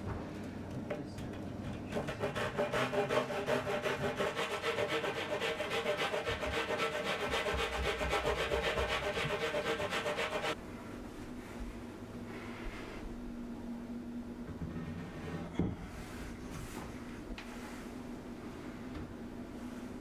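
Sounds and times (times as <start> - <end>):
hand saw cutting wood: 1.9 - 10.6.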